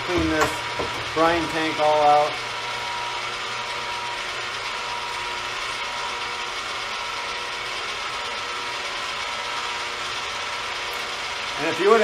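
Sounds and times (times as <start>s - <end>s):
crane hoist gear whine: 0.0s - 12.0s.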